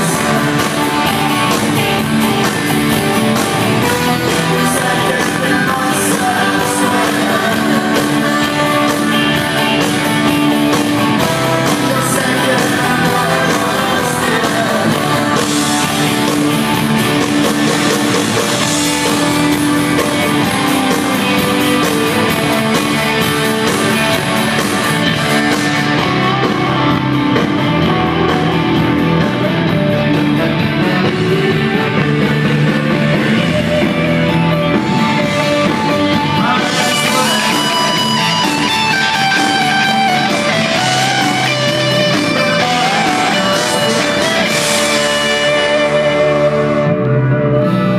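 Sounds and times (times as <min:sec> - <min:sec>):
person singing: 0:00.0 - 0:16.9, 0:30.4 - 0:47.9
drums: 0:00.0 - 0:47.9
electric guitars: 0:00.0 - 0:47.9.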